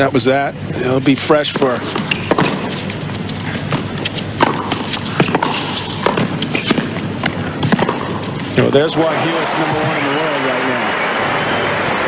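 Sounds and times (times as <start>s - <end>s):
racquets striking tennis ball: 1.5s - 8.9s
ball bouncing: 1.6s - 3.0s, 3.7s - 8.2s
crowd noise: 8.4s - 12.0s.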